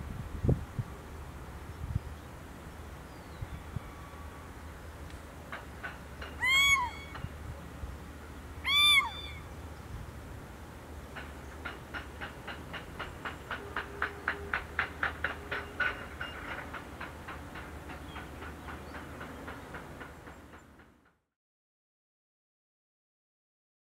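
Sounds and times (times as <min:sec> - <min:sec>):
owl calls: 0:06.4 - 0:07.3, 0:08.6 - 0:09.6.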